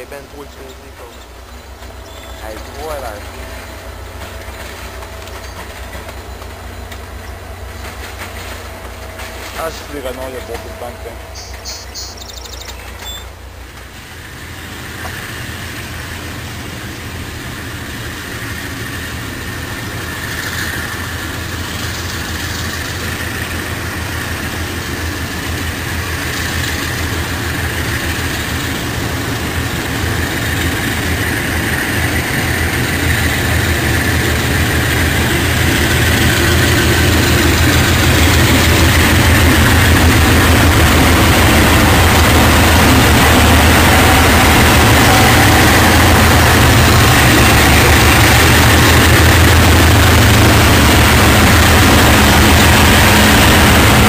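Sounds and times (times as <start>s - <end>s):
diesel locomotives engine rumble: 0.0s - 54.0s.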